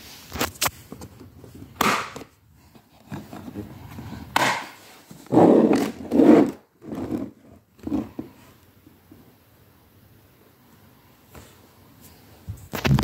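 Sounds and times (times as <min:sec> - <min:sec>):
plastic rubbing and knocking: 0:00.9 - 0:08.4.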